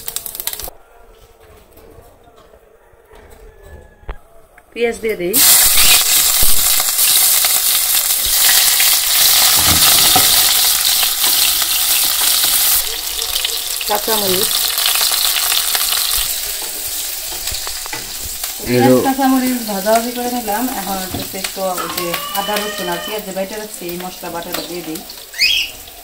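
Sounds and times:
onions sizzling in oil: 0.0 - 0.7, 5.3 - 26.0
person speaking: 18.6 - 19.8.

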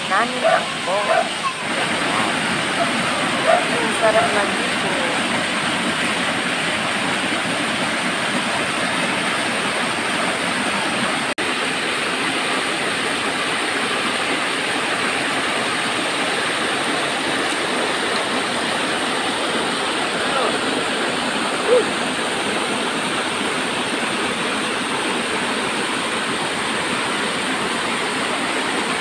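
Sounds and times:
waterfall rushing over rocks: 0.0 - 29.0.

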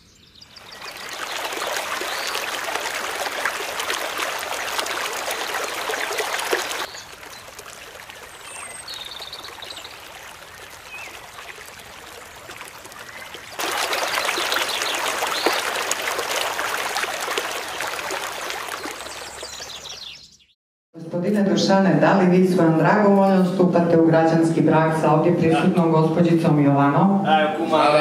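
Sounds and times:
river rapids rushing over stones: 0.9 - 6.9.

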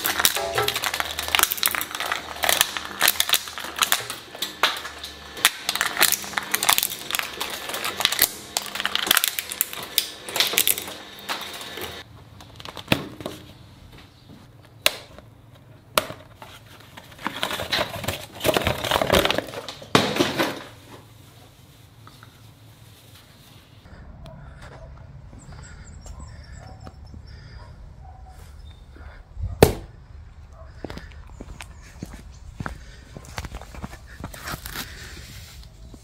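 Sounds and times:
shredder crackling through rubber: 0.0 - 12.9, 16.8 - 20.8
rustling handling noise: 15.5 - 23.8.

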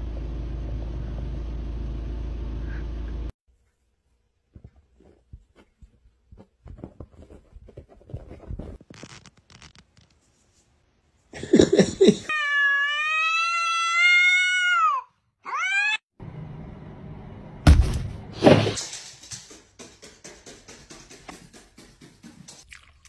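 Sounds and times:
soft scuffling and light taps: 4.5 - 10.8
cat yowling and meowing: 12.3 - 16.1.

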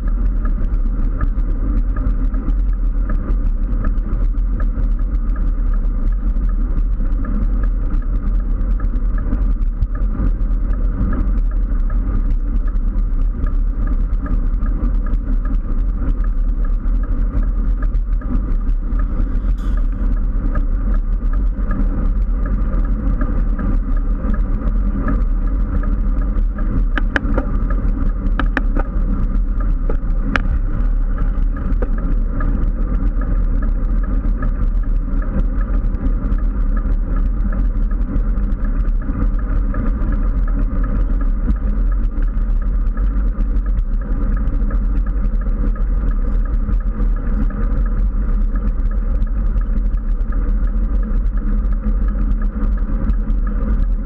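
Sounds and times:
tyre road noise on asphalt: 0.0 - 54.0
wind rushing over microphone: 8.1 - 37.6.

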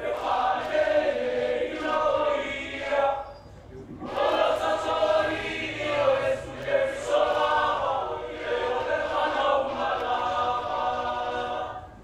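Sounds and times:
male voices singing together: 0.0 - 3.3, 4.0 - 12.0.

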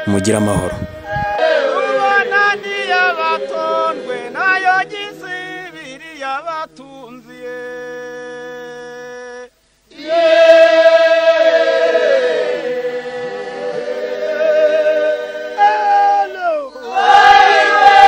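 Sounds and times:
person chanting a held note: 0.0 - 1.4
group of voices singing: 0.0 - 7.7, 9.9 - 18.0.

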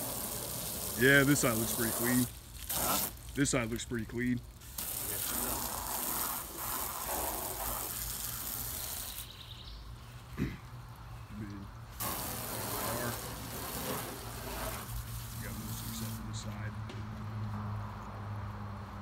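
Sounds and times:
hose spraying water on car: 0.0 - 9.6, 11.8 - 16.7.

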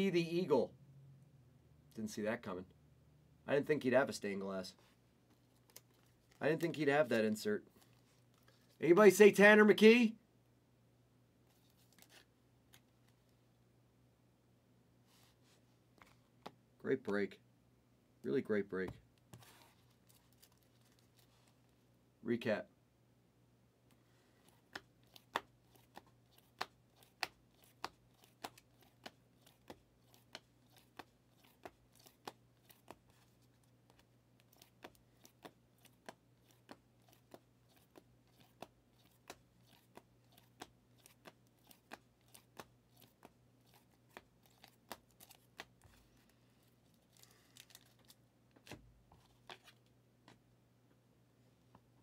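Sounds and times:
card rustling: 11.5 - 13.3, 19.4 - 21.7, 24.3 - 50.4.

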